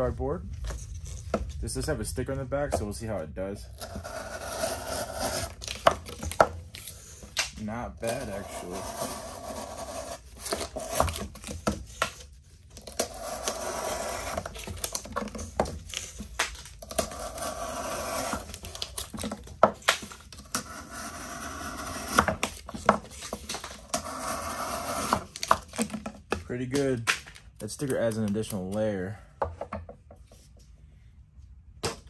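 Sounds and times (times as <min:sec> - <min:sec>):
knife cutting cardboard: 0:03.7 - 0:26.0
cardboard clicking and crackling: 0:05.1 - 0:17.4, 0:18.1 - 0:20.6, 0:25.0 - 0:28.9.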